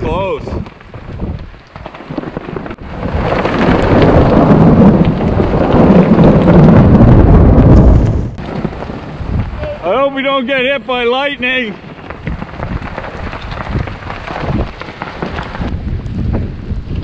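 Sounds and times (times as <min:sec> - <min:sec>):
thunder rolling: 0:02.0 - 0:09.9.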